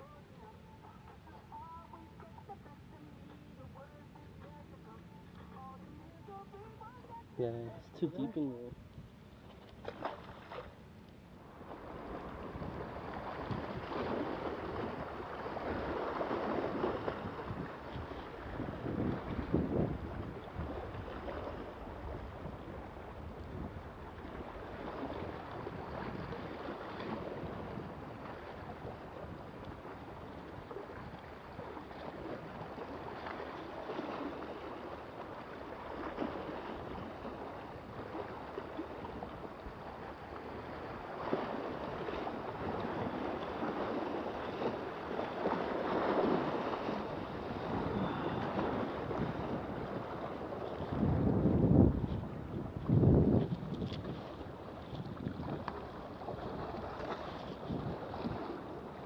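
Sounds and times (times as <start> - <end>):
small waves lapping against rocks: 9.3 - 59.0
wind rumbling on microphone: 11.4 - 59.0.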